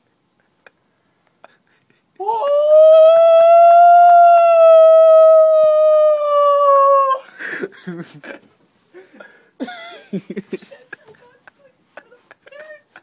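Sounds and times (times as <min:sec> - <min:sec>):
man imitating wolf howl: 0:02.2 - 0:07.3
soft scattered noises: 0:10.1 - 0:13.0.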